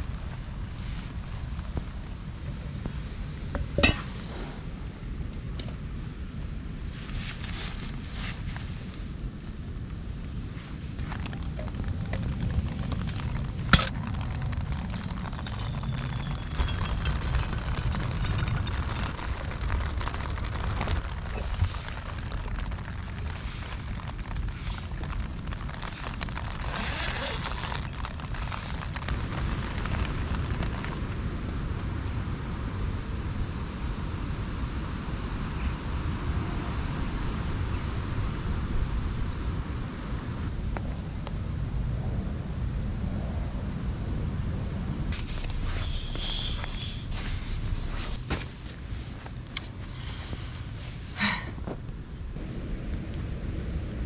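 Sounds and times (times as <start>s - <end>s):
steady low rumble: 0.0s - 54.0s
wind buffeting microphone: 0.0s - 54.0s
wind rushing through trees: 0.0s - 54.0s
cooking gear rustling and clattering: 11.0s - 30.9s, 45.1s - 51.0s.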